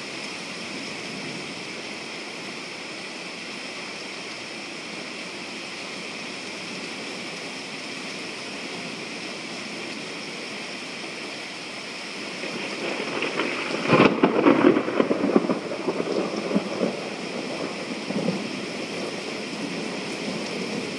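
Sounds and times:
steady rain falling: 0:00.0 - 0:20.9
crackling thunder: 0:12.2 - 0:20.9.

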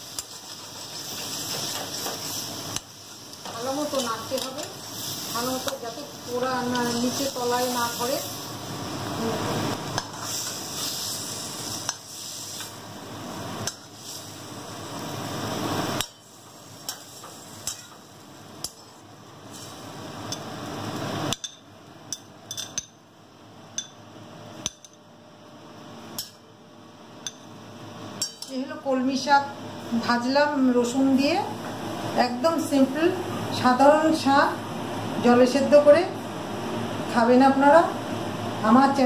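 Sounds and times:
metal spatula scraping a pan: 0:00.0 - 0:02.5.

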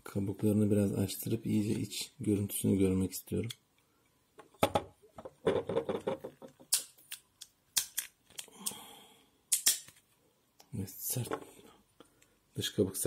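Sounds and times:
walnut shell cracking: 0:06.0 - 0:08.8.

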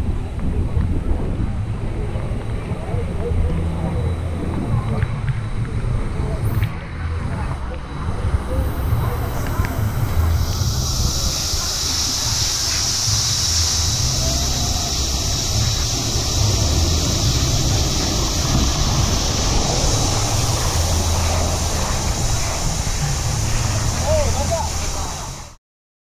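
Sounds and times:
water rushing down slide: 0:06.4 - 0:25.6.

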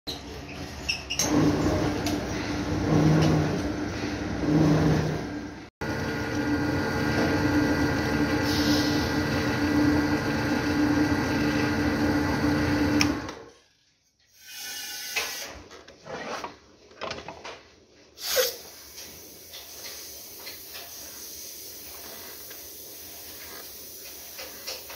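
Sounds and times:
machine motor humming: 0:02.8 - 0:13.3
sharp air hiss: 0:18.2 - 0:24.9.

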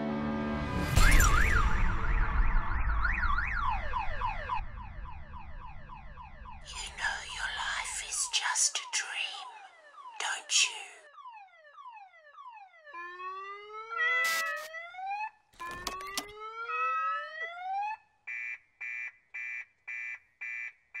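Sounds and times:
short electronic beeps: 0:14.2 - 0:14.7.

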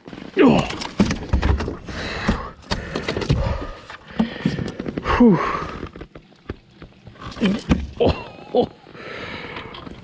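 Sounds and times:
knocks and rattles against boat: 0:00.6 - 0:05.0, 0:05.9 - 0:08.3.

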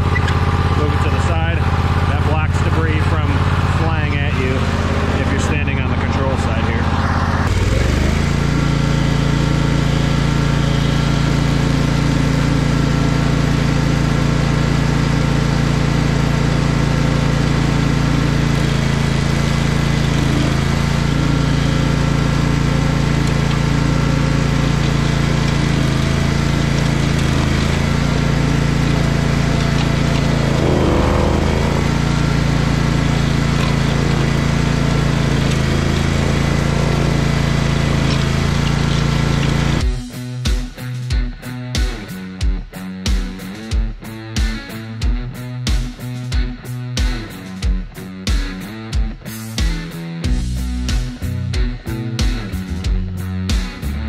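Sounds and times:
cutter wheel grinding stump: 0:00.0 - 0:09.1, 0:18.0 - 0:39.8
engine running under load: 0:00.0 - 0:39.8.

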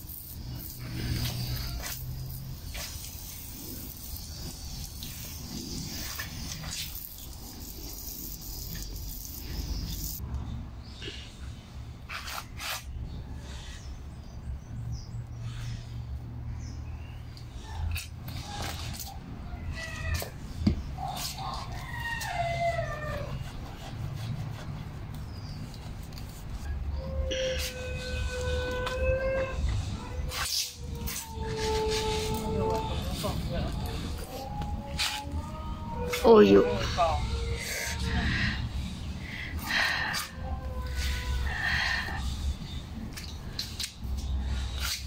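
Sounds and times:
hose water splashing: 0:00.0 - 0:10.2
dog whining: 0:27.0 - 0:38.4.

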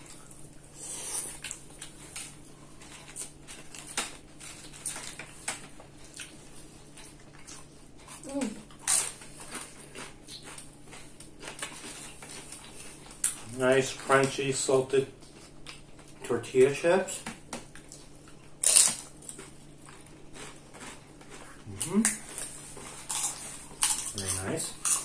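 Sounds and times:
chip crunch: 0:00.0 - 0:14.7, 0:17.8 - 0:25.0
chewing and lip smacks: 0:01.1 - 0:13.5, 0:17.6 - 0:25.0.

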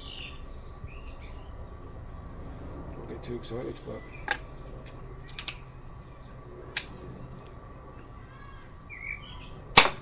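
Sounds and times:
air pistol metallic clicks: 0:06.7 - 0:07.0.

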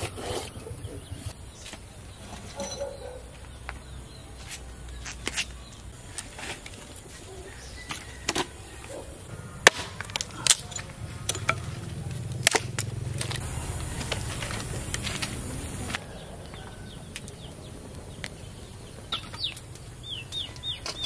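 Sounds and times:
firewood sticks clattering: 0:01.6 - 0:03.2, 0:09.6 - 0:13.4.

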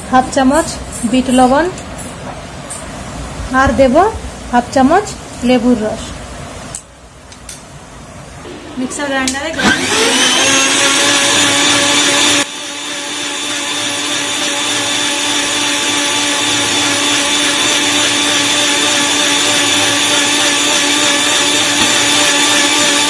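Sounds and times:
mixer grinder motor whining: 0:08.5 - 0:23.0
contents churning in blender: 0:09.6 - 0:23.0.

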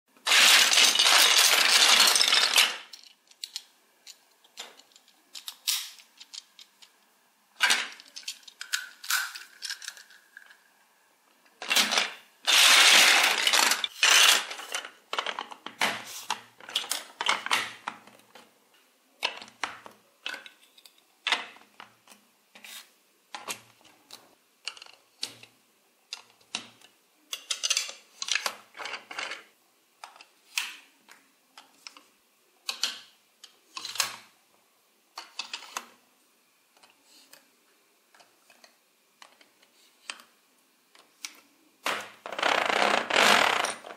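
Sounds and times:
plastic toy bricks clattering: 0:00.2 - 0:07.0, 0:07.6 - 0:10.7, 0:11.6 - 0:18.5, 0:24.6 - 0:25.5, 0:26.1 - 0:30.9, 0:31.6 - 0:34.3, 0:35.2 - 0:36.0.

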